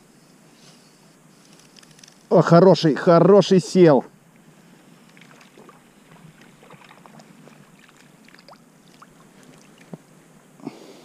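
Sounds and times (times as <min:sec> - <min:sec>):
small clicks and ticks: 0:01.4 - 0:02.3
water splashing: 0:05.0 - 0:10.0.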